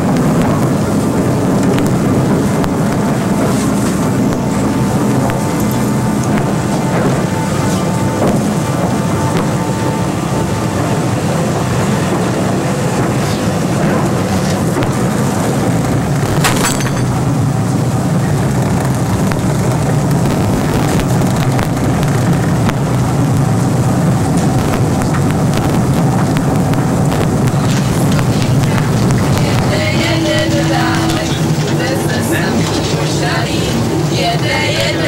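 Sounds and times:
loud low rumble: 0.0 - 35.0
sharp crack: 16.1 - 17.4, 24.4 - 29.7.

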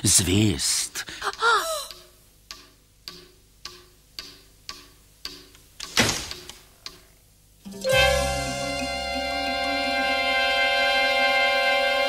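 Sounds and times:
clock ticking: 1.2 - 7.2.

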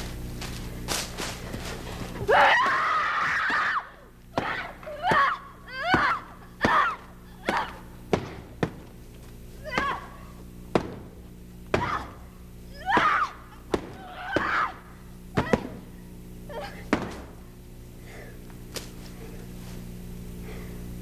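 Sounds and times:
low steady hum: 0.0 - 21.0
woman screaming: 2.3 - 7.8, 9.6 - 10.3, 11.8 - 15.8, 16.5 - 16.9
short ragged cries: 11.8 - 16.9.

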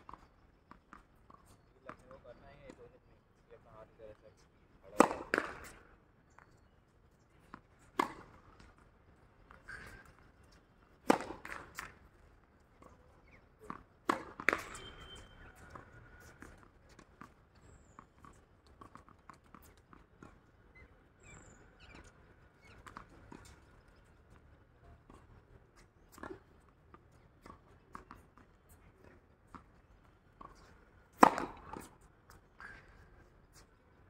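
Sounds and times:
tennis racket hitting ball: 4.9 - 5.6, 31.1 - 31.9.

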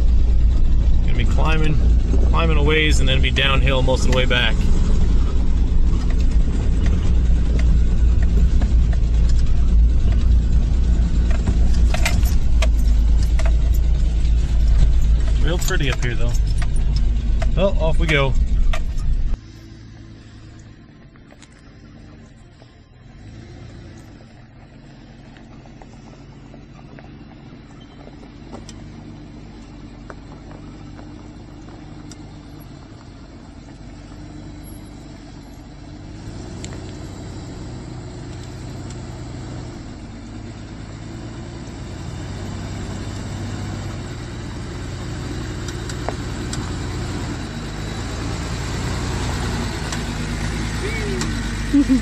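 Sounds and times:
truck engine running at low speed: 0.0 - 52.0.

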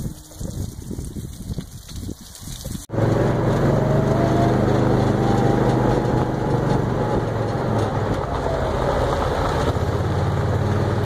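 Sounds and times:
vehicle engine humming: 2.9 - 11.0.

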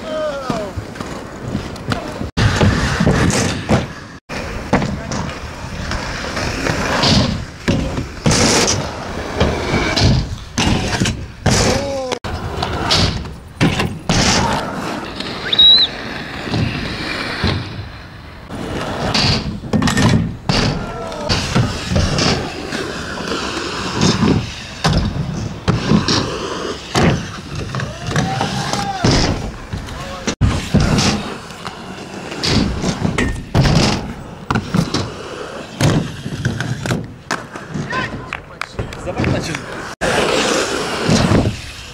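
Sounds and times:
skateboard wheels rolling: 0.0 - 41.9
skateboard landing slams: 0.5 - 6.0, 6.6 - 14.7, 18.7 - 22.6, 23.9 - 26.3, 26.9 - 31.4, 32.4 - 35.1, 35.7 - 39.5, 40.9 - 41.9
steady outdoor hiss: 1.0 - 41.9.

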